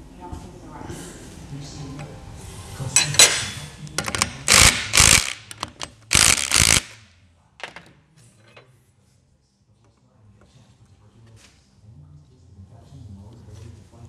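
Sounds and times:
metal parts clicking: 4.0 - 7.0
loud short noise bursts: 4.5 - 5.5.

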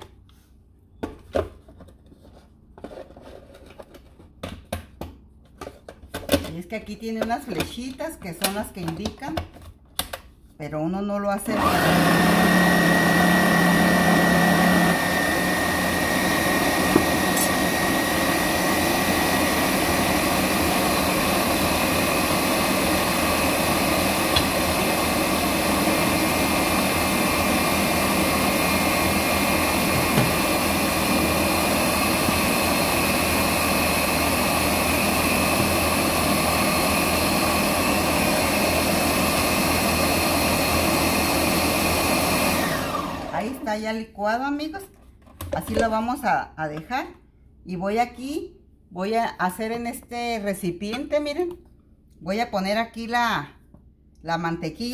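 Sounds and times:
blender running: 11.4 - 43.7.

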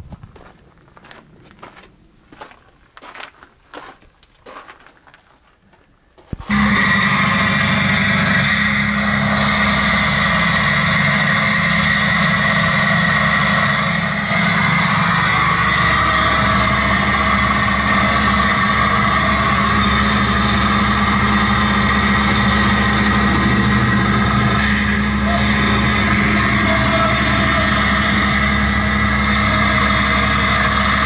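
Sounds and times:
vehicle engine running: 6.5 - 31.0.

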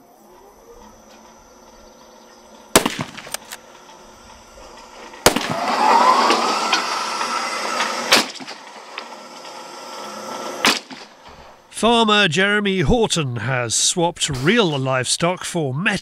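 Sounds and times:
motorised target carriage whining: 0.0 - 12.0
rifle shot: 2.7 - 3.6, 5.2 - 5.7, 8.1 - 8.6, 10.6 - 11.2
sharp crack: 2.7 - 3.9, 4.6 - 9.3, 10.6 - 11.6
carriage click: 2.9 - 3.6.

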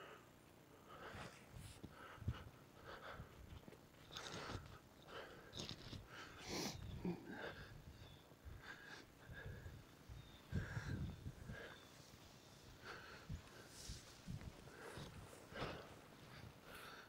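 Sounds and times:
person breathing in puffs: 12.8 - 17.0.

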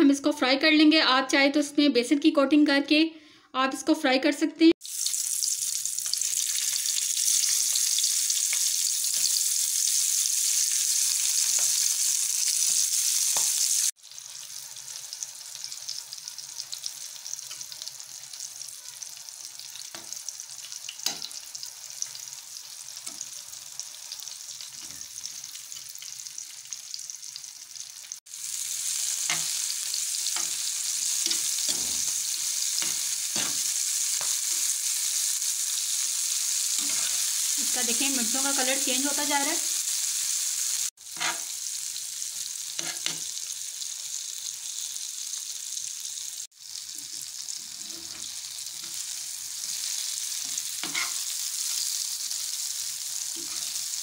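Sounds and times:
chillies sizzling in hot oil: 4.7 - 54.0
spatula scraping frying pan: 29.1 - 34.7, 36.6 - 37.5, 41.1 - 41.5, 42.8 - 43.3, 47.6 - 49.0, 49.6 - 51.4, 53.4 - 53.8.

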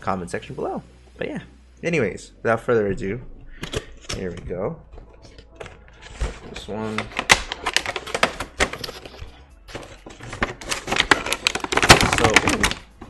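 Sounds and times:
cardboard box being torn open: 10.4 - 12.8.

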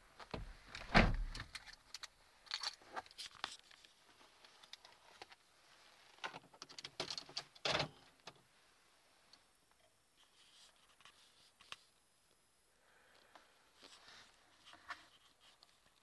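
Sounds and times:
small clicks and rustles: 0.2 - 8.4, 13.1 - 16.0.

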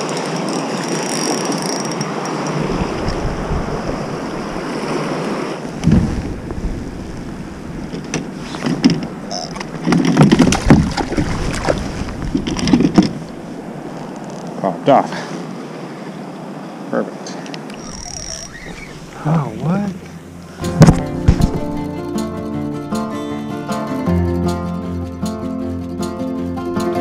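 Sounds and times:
knocks and clicks against kayak: 0.0 - 3.2, 7.9 - 13.3, 20.7 - 21.9
river current rushing: 0.0 - 12.4, 13.1 - 23.7
wind buffeting microphone: 0.0 - 14.1, 17.8 - 21.9
fish splashing: 17.8 - 19.3.

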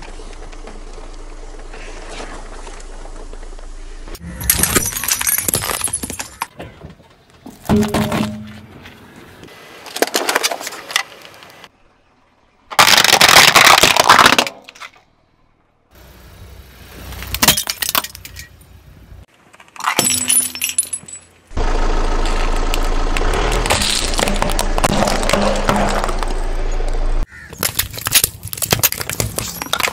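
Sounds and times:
tyre crushing plastic objects: 4.4 - 6.7, 12.7 - 15.0, 22.8 - 26.5, 27.3 - 29.9.

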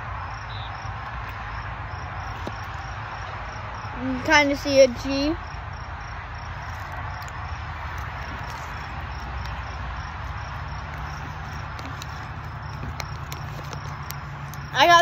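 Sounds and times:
insect chirping: 0.0 - 15.0
plastic wrapper crinkling: 6.6 - 15.0.

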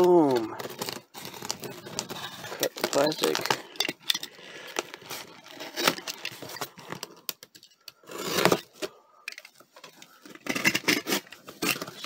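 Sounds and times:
box cutter slicing tape: 8.0 - 8.7, 10.5 - 12.0.

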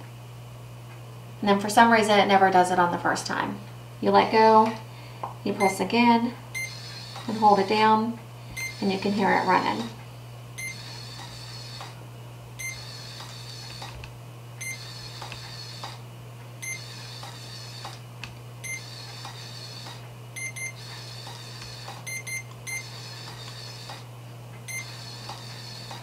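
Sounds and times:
infusion pump beeps: 5.6 - 5.8, 6.5 - 7.7, 8.5 - 9.5, 10.6 - 12.0, 12.6 - 14.0, 14.6 - 16.0, 16.6 - 18.0, 18.6 - 24.0, 24.7 - 26.0
pump mechanism whirring: 6.5 - 26.0.

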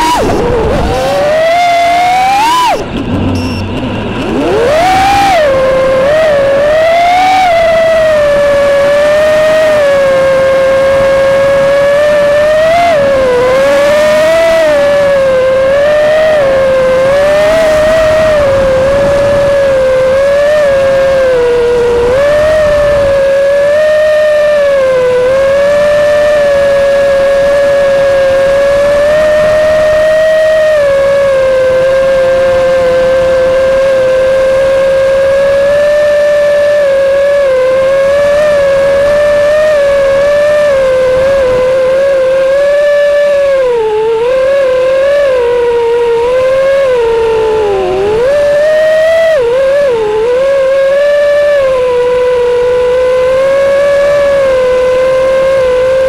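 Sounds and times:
drone motors whining: 0.0 - 56.0.

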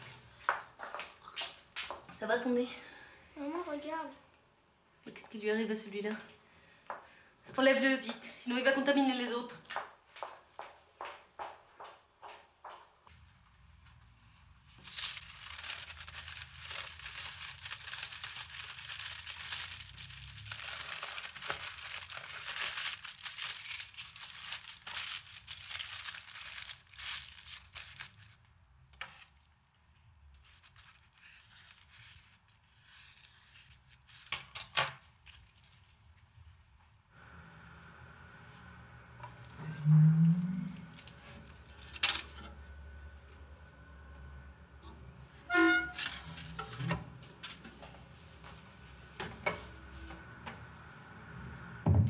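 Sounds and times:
foil crumpling: 14.8 - 28.4, 30.4 - 34.4.

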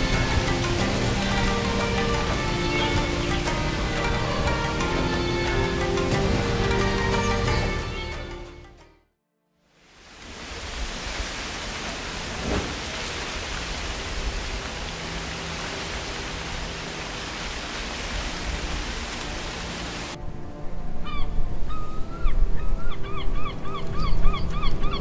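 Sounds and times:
steady rushing hiss: 0.0 - 7.9, 9.8 - 20.2.

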